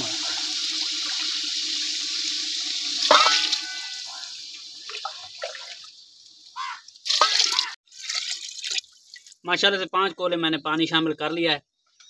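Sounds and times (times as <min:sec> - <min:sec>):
water pouring into a pot: 0:00.0 - 0:09.4
water splashes and drips: 0:00.0 - 0:09.5.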